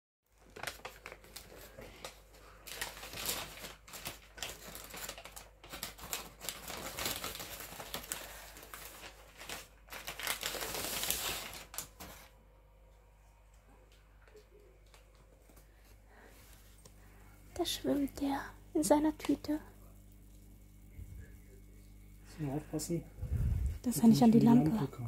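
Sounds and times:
paper bag crinkling: 0.3s - 12.4s.

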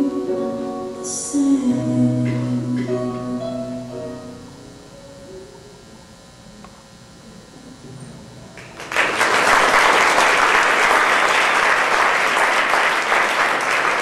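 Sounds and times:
music: 0.0s - 5.8s
audience applause: 8.6s - 14.0s.

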